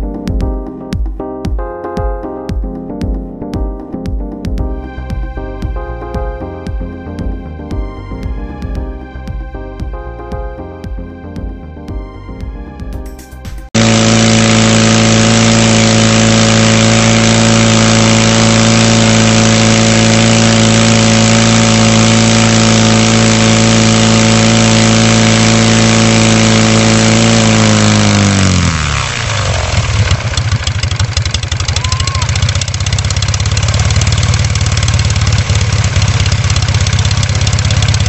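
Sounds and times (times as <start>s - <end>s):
aircraft engine running: 11.1s - 38.0s.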